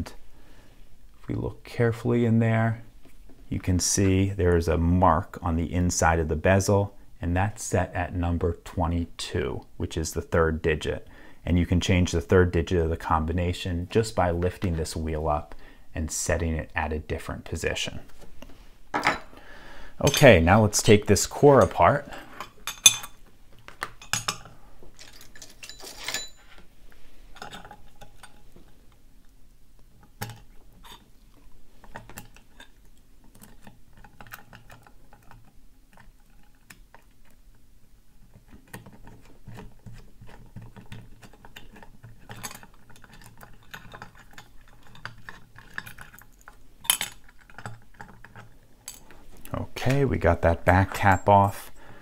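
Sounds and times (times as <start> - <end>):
small metal clicks and scrapes: 27.3 - 28.8, 30.0 - 37.6, 38.2 - 49.2.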